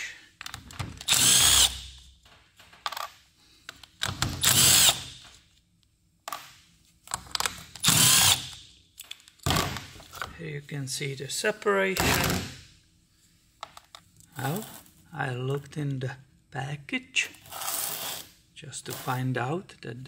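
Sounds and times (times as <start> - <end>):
cordless power driver whirring: 1.0 - 1.8.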